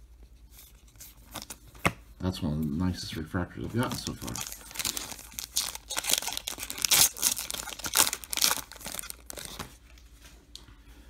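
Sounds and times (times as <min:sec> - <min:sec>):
foil wrapper ripping and crumpling: 0:03.7 - 0:09.8.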